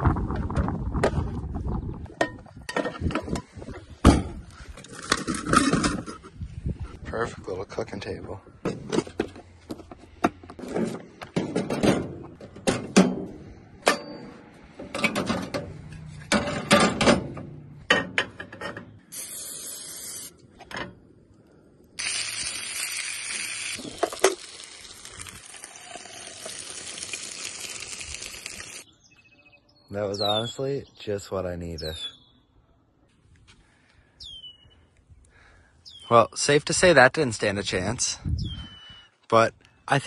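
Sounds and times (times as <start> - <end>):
food sizzling in a pan: 22.0 - 28.8.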